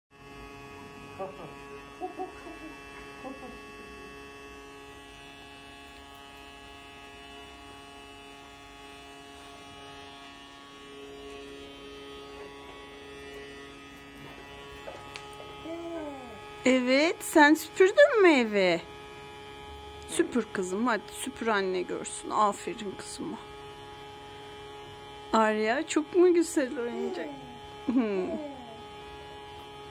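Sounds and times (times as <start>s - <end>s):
toy vacuum motor humming: 26.2s - 29.2s.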